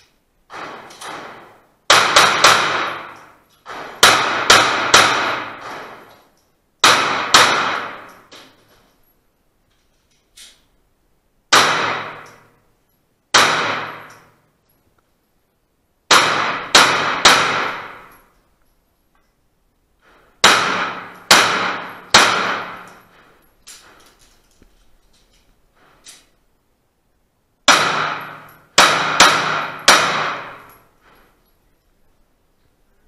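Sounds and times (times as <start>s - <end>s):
pistol shots echoing indoors: 0.4s - 8.6s, 11.4s - 14.8s, 16.0s - 18.5s, 20.0s - 24.3s, 27.6s - 31.5s.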